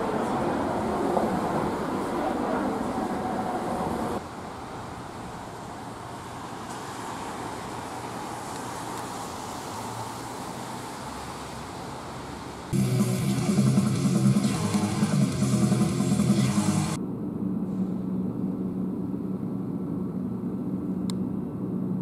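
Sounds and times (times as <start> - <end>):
distant road traffic hum: 0.0 - 22.0
music: 12.8 - 17.0.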